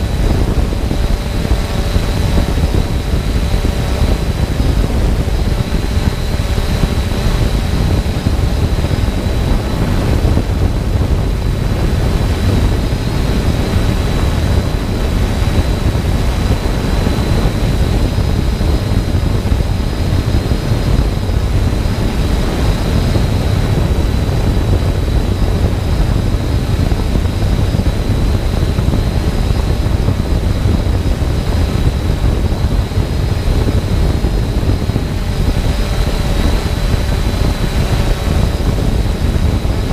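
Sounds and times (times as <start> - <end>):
drone motors whining: 0.0 - 39.9
low rumble: 0.0 - 39.9.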